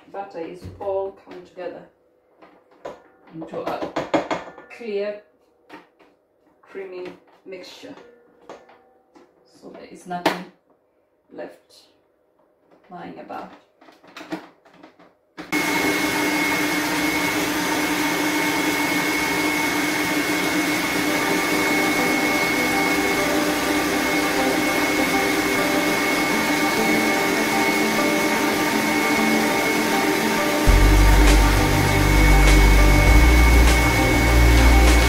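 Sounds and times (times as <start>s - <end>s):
electric stand mixer running: 15.6s - 35.0s.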